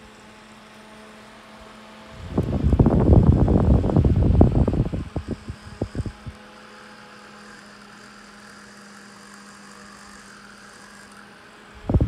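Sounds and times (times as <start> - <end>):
desk fan motor hum: 0.0 - 12.0
wind buffeting microphone: 2.1 - 6.4.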